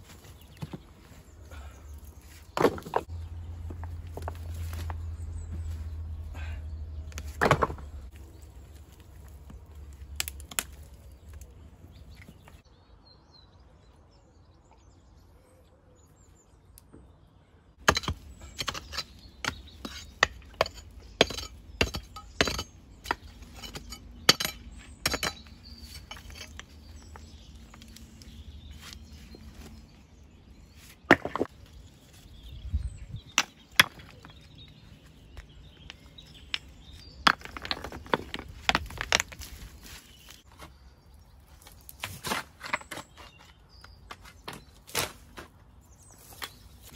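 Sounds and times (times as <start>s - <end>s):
pick chopping stony soil: 7.1s - 11.5s, 17.8s - 29.8s, 30.9s - 31.8s, 41.6s - 45.6s.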